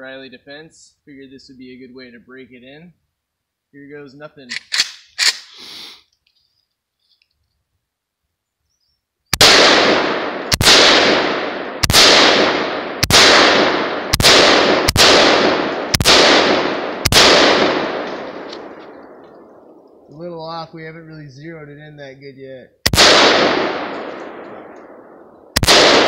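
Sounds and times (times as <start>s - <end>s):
rifle shots echoing: 9.3s - 20.1s, 22.8s - 26.0s.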